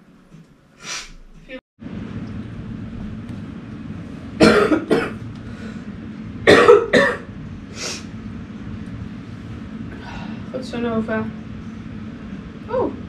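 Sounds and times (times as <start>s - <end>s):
faint cough-like sound: 4.4s - 5.2s, 6.5s - 7.3s
person coughing: 4.4s - 5.2s, 6.5s - 7.3s.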